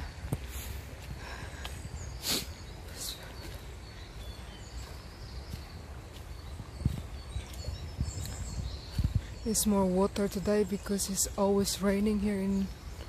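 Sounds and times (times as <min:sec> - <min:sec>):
bird chirps: 0:01.4 - 0:13.0.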